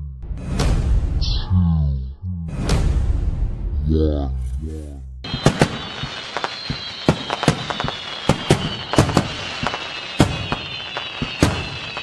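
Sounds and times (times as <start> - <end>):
fireworks bangs: 5.2 - 12.0.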